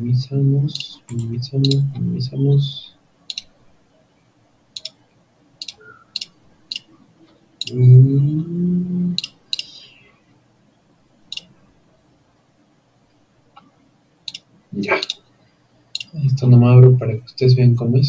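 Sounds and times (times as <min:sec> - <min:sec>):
computer mouse clicking: 0:00.7 - 0:01.8, 0:03.3 - 0:03.5, 0:04.8 - 0:05.0, 0:05.6 - 0:06.9, 0:09.2 - 0:09.7, 0:11.3 - 0:11.5, 0:14.3 - 0:15.2, 0:15.9 - 0:16.2
person humming: 0:07.7 - 0:10.0.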